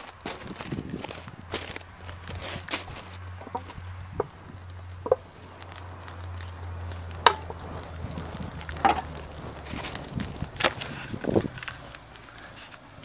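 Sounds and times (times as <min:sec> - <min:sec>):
wood fire crackling: 0:00.0 - 0:13.0
sharp pops: 0:02.8 - 0:13.0.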